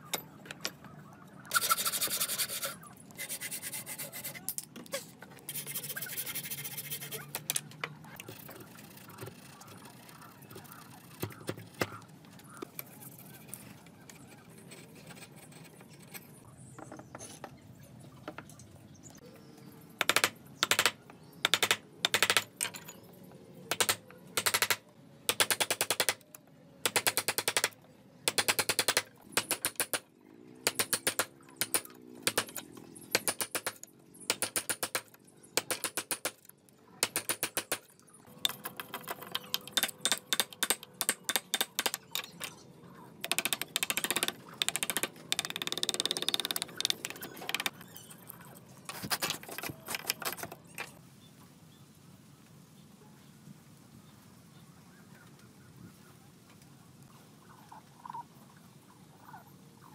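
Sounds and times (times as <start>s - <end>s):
chisel scraping wood chips: 48.9s - 50.6s.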